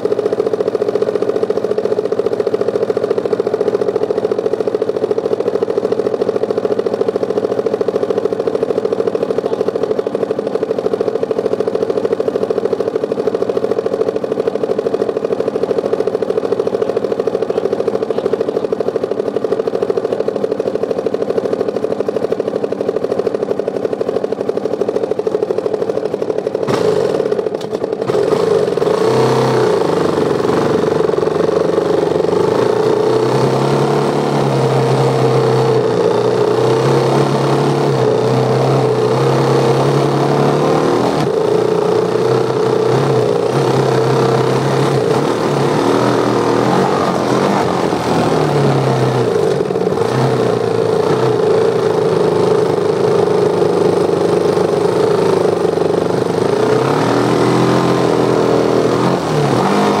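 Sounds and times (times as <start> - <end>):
dirt bike engine revving: 24.6 - 60.0.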